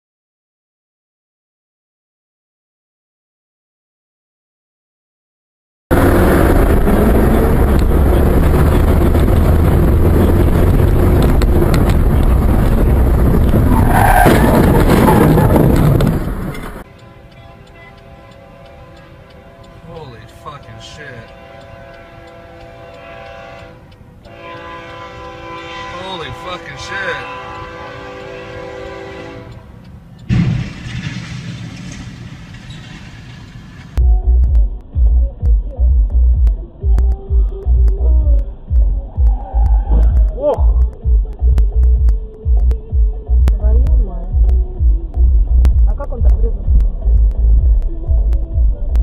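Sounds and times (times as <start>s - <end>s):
rumbling noise: 5.9s - 16.9s, 30.3s - 49.0s
car engine and road noise: 5.9s - 49.0s
tyres squealing: 13.5s - 16.8s
train horn chord: 16.9s - 29.8s.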